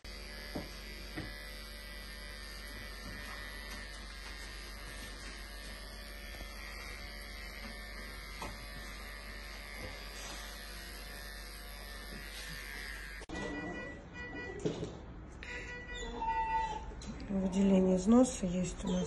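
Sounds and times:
electric clippers buzzing: 0:00.0 - 0:14.0.

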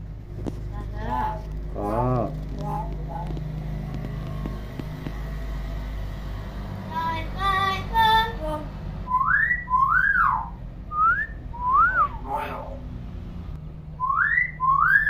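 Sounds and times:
myna whistling: 0:09.1 - 0:12.6, 0:14.0 - 0:15.0
voice-like bird call: 0:11.6 - 0:12.8.

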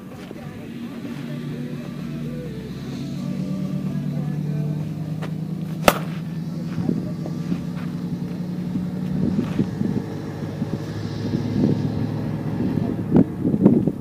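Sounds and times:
steady low hum: 0:00.0 - 0:14.0
bat hitting softball: 0:05.8 - 0:06.2.

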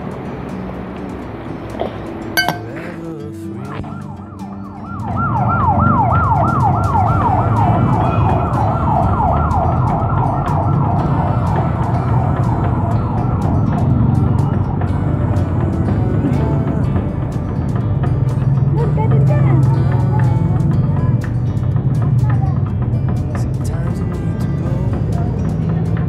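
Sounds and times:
siren-like wail: 0:03.8 - 0:15.7
heavy low rumble: 0:05.0 - 0:26.0.

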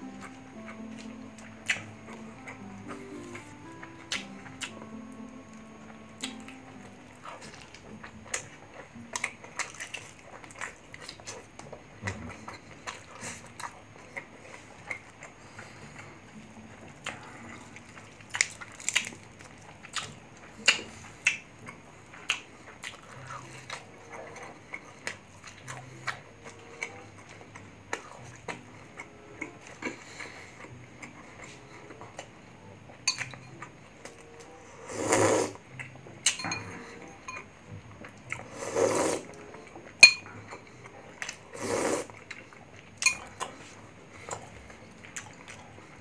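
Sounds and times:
wet chewing and smacking: 0:00.0 - 0:04.9, 0:05.6 - 0:34.5, 0:35.7 - 0:36.6, 0:39.2 - 0:41.5, 0:42.1 - 0:46.0
chicken crackling when torn: 0:18.3 - 0:19.3.

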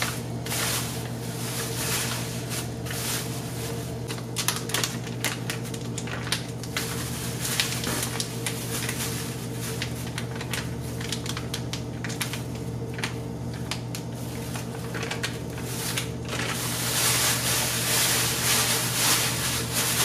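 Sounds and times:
paper packet rustling: 0:00.0 - 0:20.0
plastic bag crinkling: 0:00.0 - 0:20.0.

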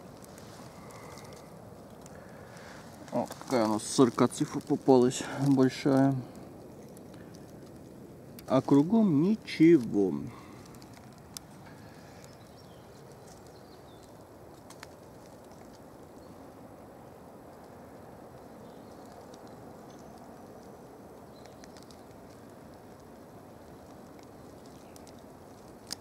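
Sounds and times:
faint bird chirps: 0:11.6 - 0:14.3.

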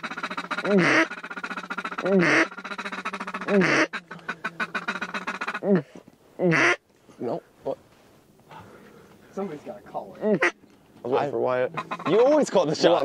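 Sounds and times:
duck call quacks: 0:00.0 - 0:05.8, 0:06.4 - 0:06.8, 0:10.4 - 0:10.6, 0:11.7 - 0:12.5
duck call clucking chatter: 0:00.0 - 0:06.8, 0:10.3 - 0:10.6, 0:11.7 - 0:13.0.

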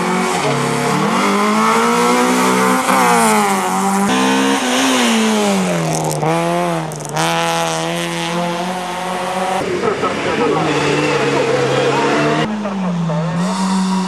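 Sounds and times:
race car engine revving: 0:00.0 - 0:14.0.

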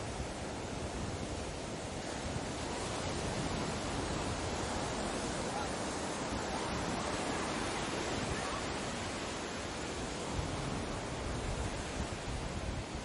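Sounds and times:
ocean surf rushing: 0:00.0 - 0:13.0.

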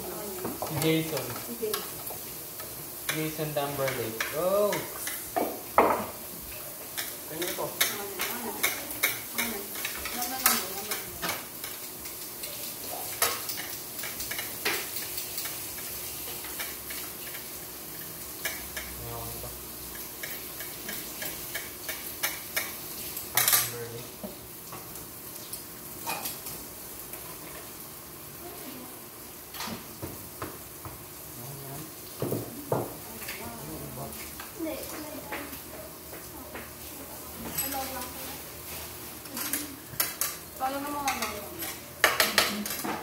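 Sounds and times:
food sizzling on grill pan: 0:00.0 - 0:43.0
metal tongs clattering on pan: 0:07.0 - 0:17.5, 0:39.2 - 0:43.0.

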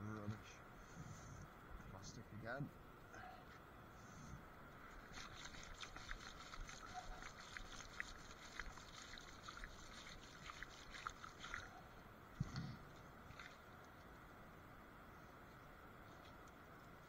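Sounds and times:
wet debris clicking and crackling: 0:05.0 - 0:11.8.

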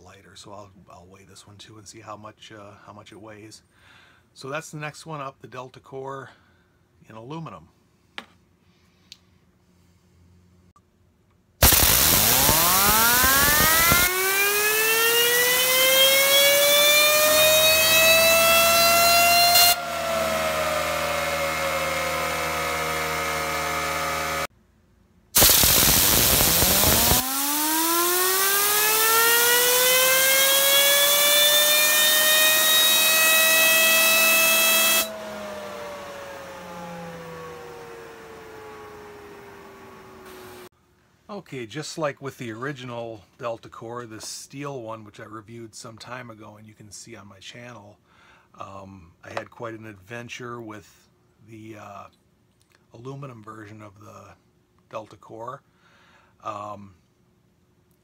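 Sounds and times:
fidget spinner whining: 0:11.6 - 0:24.4, 0:25.4 - 0:40.7
compressed air hissing: 0:25.4 - 0:27.6.

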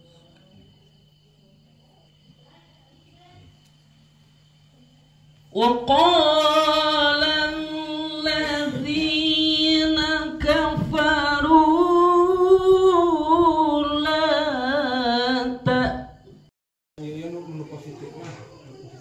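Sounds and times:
person singing into microphone: 0:05.6 - 0:16.1.

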